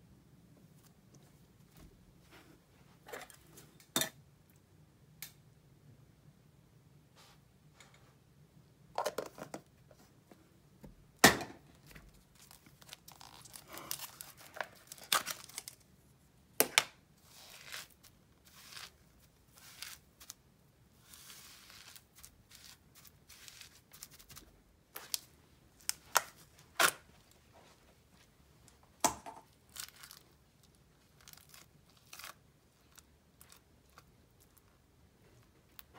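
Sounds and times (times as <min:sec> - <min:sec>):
slime scraping and tearing: 0:17.2 - 0:20.4, 0:21.0 - 0:24.4, 0:31.0 - 0:34.7.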